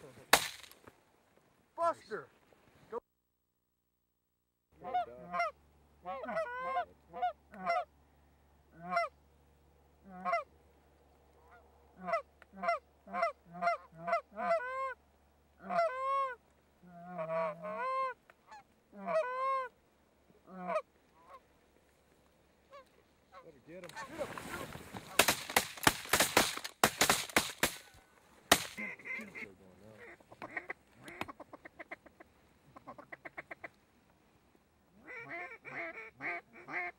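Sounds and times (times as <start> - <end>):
geese honking: 4.8 - 7.9, 8.7 - 9.2, 10.0 - 10.5, 11.3 - 15.0, 15.6 - 19.8, 20.4 - 21.6, 22.6 - 25.7, 27.2 - 33.8, 35.0 - 36.9.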